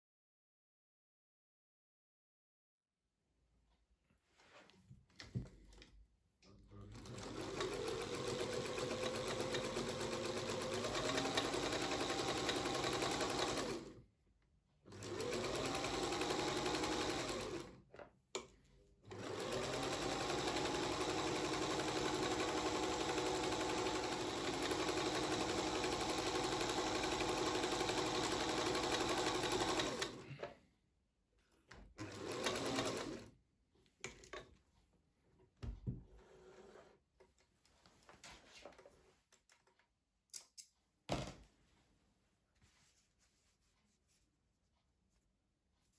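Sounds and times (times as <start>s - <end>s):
sewing machine stitching: 6.9s - 14.0s, 14.9s - 17.8s, 19.1s - 30.5s, 32.0s - 33.3s.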